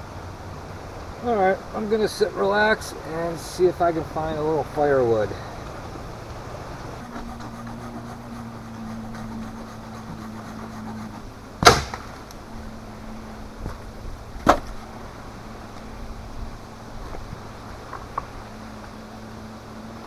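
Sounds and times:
steady low hum: 0:00.0 - 0:20.0
firewood cracking: 0:06.8 - 0:12.5.

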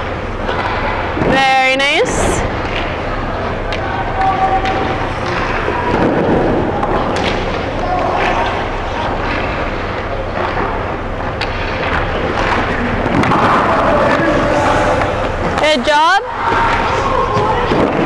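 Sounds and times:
low hum: 0:00.0 - 0:18.0
pads and skates scraping ice: 0:11.4 - 0:18.0.

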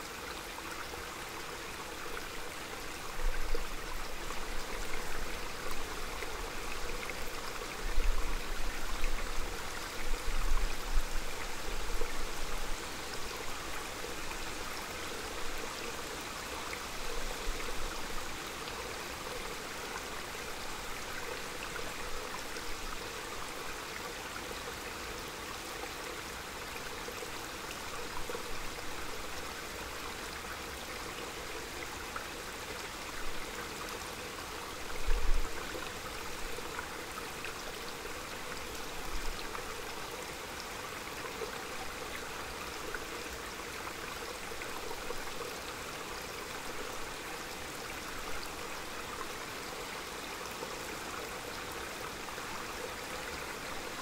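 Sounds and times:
stream flowing and trickling: 0:00.0 - 0:54.0.

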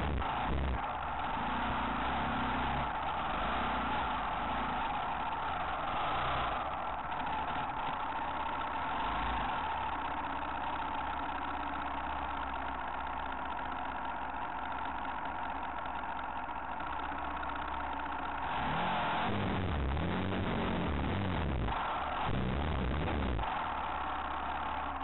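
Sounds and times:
motorcycle engine idling: 0:00.0 - 0:18.5, 0:19.3 - 0:25.0.

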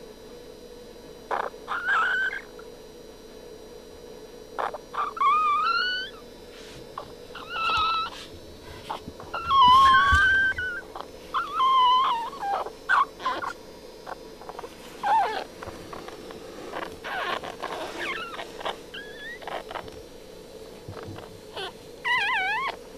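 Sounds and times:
faint steady hum: 0:00.0 - 0:22.9
puppies squealing: 0:01.3 - 0:02.6, 0:04.6 - 0:06.3, 0:07.0 - 0:20.0, 0:20.9 - 0:22.8.

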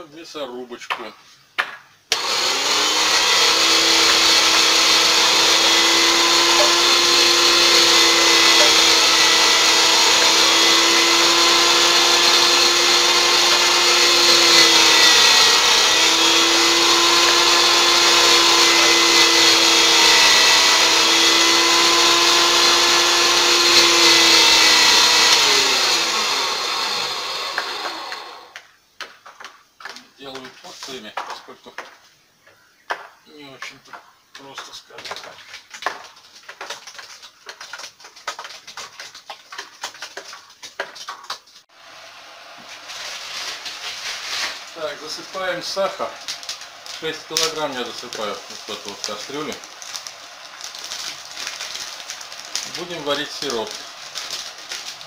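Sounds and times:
electric meat grinder motor: 0:02.1 - 0:28.6, 0:43.4 - 0:55.0.

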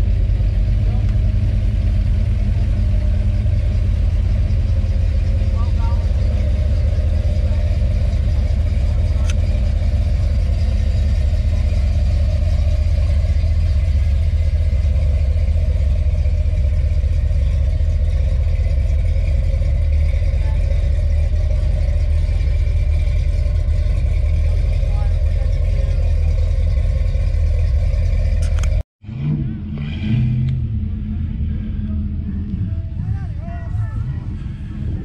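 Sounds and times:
car engine idling: 0:00.0 - 0:35.0.

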